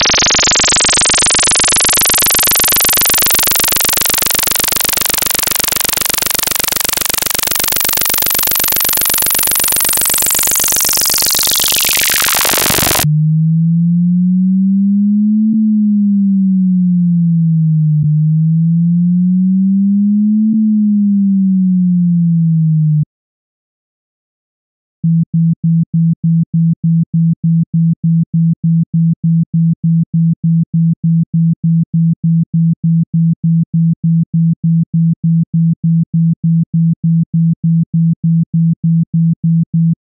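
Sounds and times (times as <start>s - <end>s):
pulsing buzz sweeping down: 0.0s - 14.7s
low wavering pure tone: 0.0s - 20.3s.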